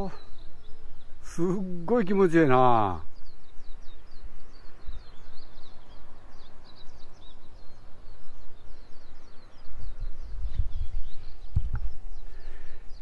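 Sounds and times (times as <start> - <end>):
small birds chirping: 0.0 - 13.0
wind rumble on microphone: 3.0 - 13.0.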